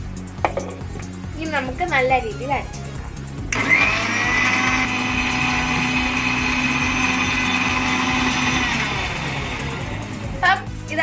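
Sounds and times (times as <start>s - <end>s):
mixer grinder motor whining: 3.5s - 10.4s.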